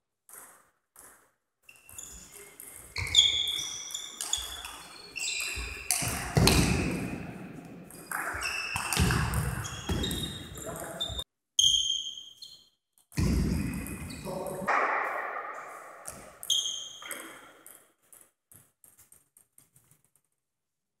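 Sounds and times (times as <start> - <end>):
table tennis ball ping: 0.3 - 11.0
ball bouncing on hard floor: 0.3 - 11.2, 13.0 - 20.2.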